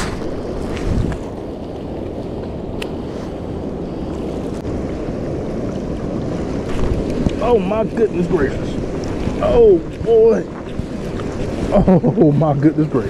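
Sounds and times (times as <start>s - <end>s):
wind noise on microphone: 0.0s - 12.2s
water rushing down spillway: 5.4s - 13.0s.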